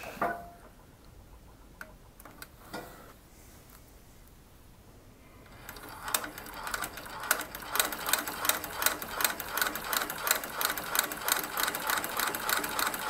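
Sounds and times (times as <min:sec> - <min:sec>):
sewing machine clattering: 0:05.5 - 0:13.0.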